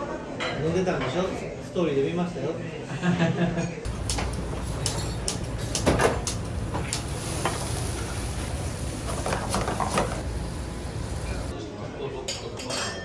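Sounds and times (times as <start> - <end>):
gas stoves rumbling: 3.9 - 11.6.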